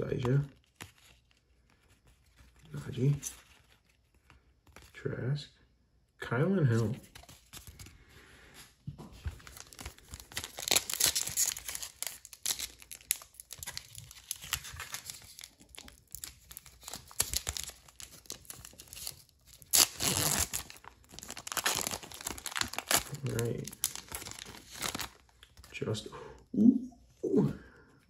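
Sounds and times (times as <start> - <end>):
foil wrapper tearing and crinkling: 9.4 - 25.7.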